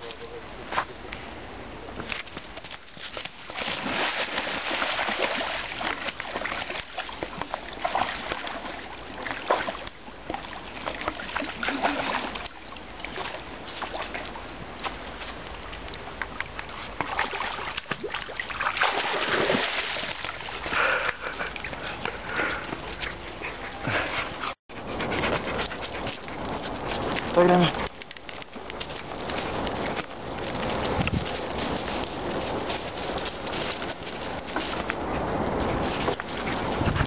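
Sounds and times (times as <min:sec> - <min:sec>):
stream running water: 0:02.1 - 0:37.0
dog splashing through water: 0:02.8 - 0:15.3, 0:16.3 - 0:24.5.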